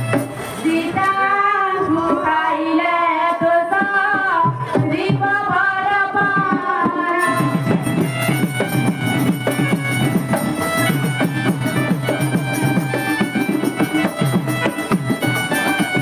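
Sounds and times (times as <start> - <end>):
hand drums: 0.0 - 1.2, 3.2 - 16.0
sustained instrumental tones: 7.1 - 16.0.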